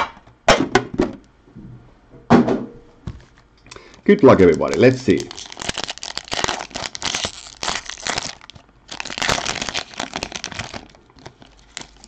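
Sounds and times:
foil wrapper crinkling torn open: 3.8 - 12.0.

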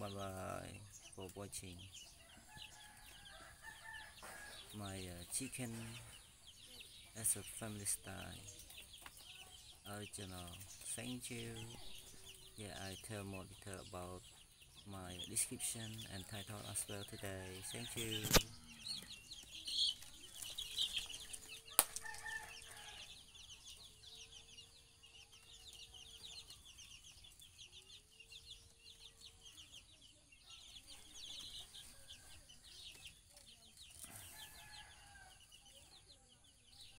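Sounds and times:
baby chicks peeping: 0.0 - 37.0
sharp click: 18.2 - 18.5.

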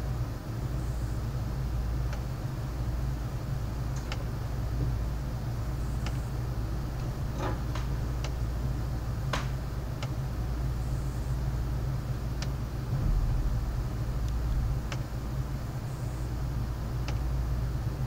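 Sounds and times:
thunderstorm rumble: 12.7 - 15.8.

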